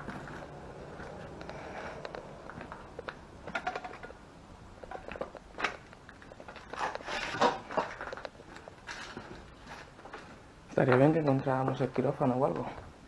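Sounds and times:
footsteps crunching over debris: 0:00.0 - 0:04.2, 0:04.8 - 0:12.8.

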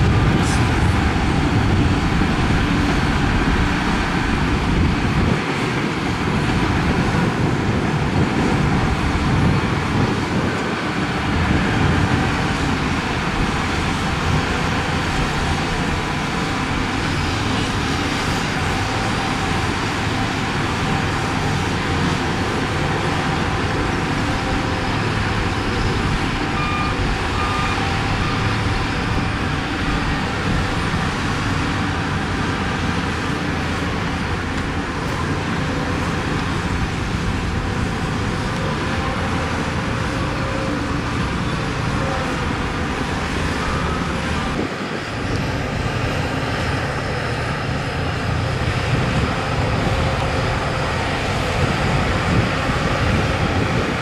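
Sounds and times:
diesel machinery running: 0:00.0 - 0:54.0
short beeps: 0:26.6 - 0:28.4.

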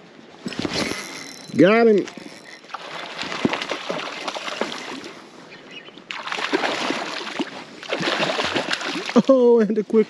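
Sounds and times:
fish splashing in water: 0:02.4 - 0:05.2, 0:06.1 - 0:09.2.

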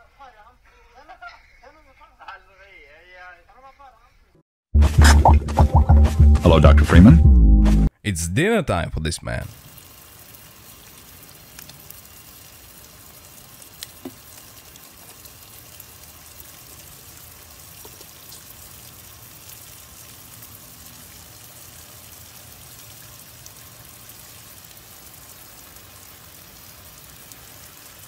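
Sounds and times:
heavy rain on table: 0:09.5 - 0:28.0.

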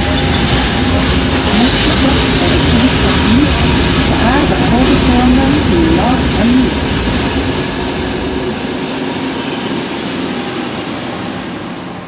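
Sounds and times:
train rolling past: 0:00.0 - 0:12.0
high-pitched wheel squeal: 0:05.7 - 0:11.5.

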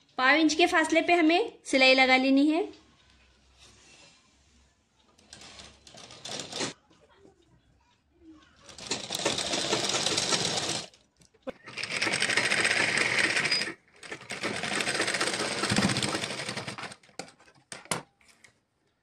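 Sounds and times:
sewing machine stitching: 0:05.2 - 0:06.8, 0:08.7 - 0:11.0, 0:11.6 - 0:17.5.

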